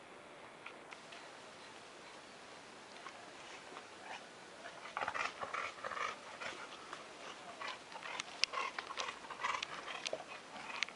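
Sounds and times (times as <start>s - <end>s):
dog panting: 4.0s - 10.9s.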